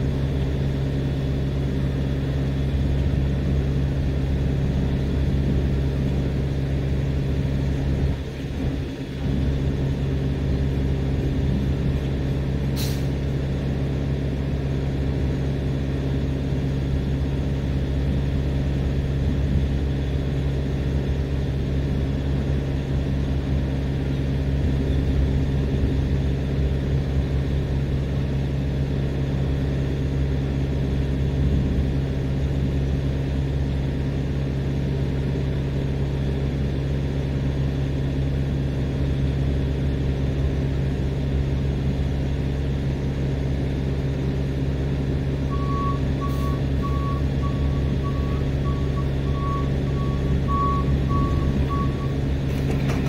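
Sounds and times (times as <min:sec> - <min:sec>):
diesel engine droning: 0:00.0 - 0:53.0
backup alarm beeping: 0:45.5 - 0:52.2.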